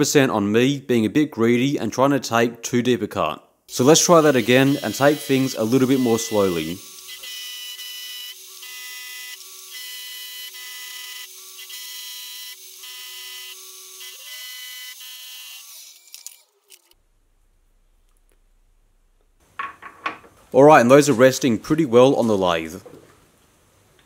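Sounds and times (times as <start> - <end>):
ringing metal cutting tone: 3.7 - 16.5
milling machine spindle whine: 3.8 - 16.4.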